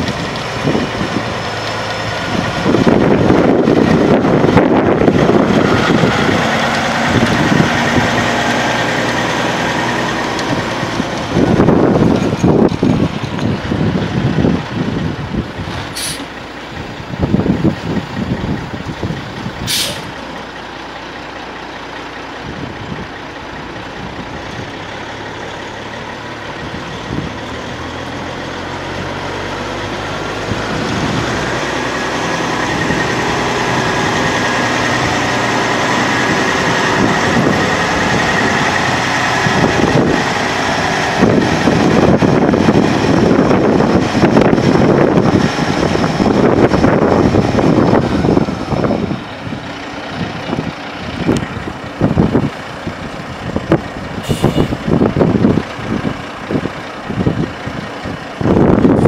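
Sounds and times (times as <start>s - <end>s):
diesel truck engine running: 0.0s - 59.0s
tires on gravel: 0.0s - 59.0s
air brake hisses: 15.9s - 16.3s, 19.7s - 20.2s, 54.2s - 54.8s.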